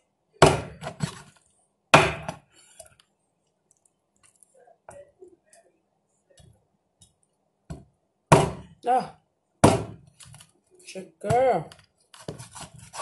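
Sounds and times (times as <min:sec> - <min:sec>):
knife chopping through bones: 0:00.4 - 0:01.0, 0:02.0 - 0:02.4, 0:09.6 - 0:10.0.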